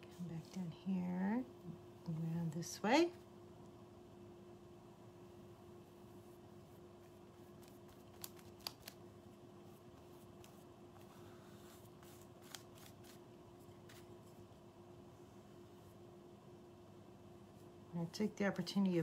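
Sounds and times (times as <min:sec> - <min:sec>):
low steady hum: 0:00.0 - 0:19.0
paintbrush strokes on canvas: 0:05.8 - 0:08.0, 0:09.6 - 0:14.5.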